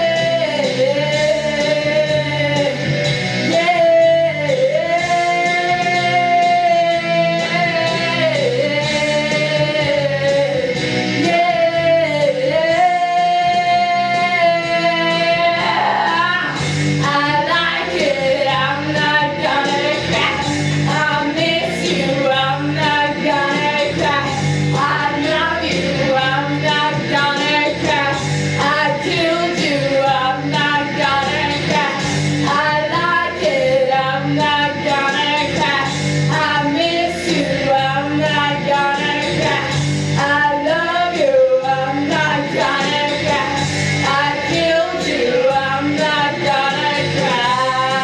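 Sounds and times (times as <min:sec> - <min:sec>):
woman singing into a microphone: 0:00.0 - 0:48.0
amplified accompaniment: 0:01.6 - 0:48.0
low bass pattern: 0:10.8 - 0:48.0.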